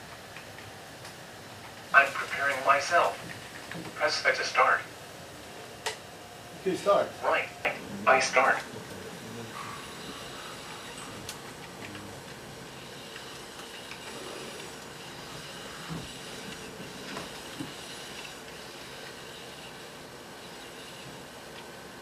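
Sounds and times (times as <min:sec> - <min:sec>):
robot arm whirring and hissing: 0:12.8 - 0:21.4.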